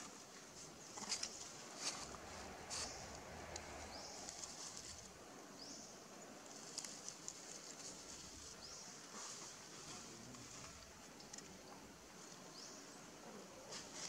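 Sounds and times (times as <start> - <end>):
faint outdoor ambience: 0.0 - 14.0
dry leaves crackling: 0.9 - 5.2, 6.4 - 10.6
high rising call: 2.0 - 5.1.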